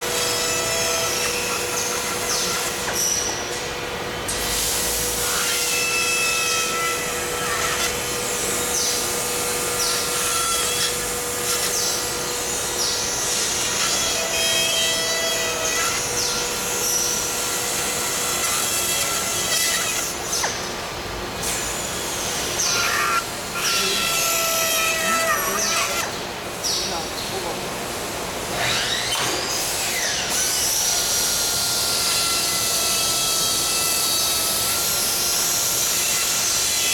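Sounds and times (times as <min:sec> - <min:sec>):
machinery hiss and hum: 0:00.0 - 0:28.6.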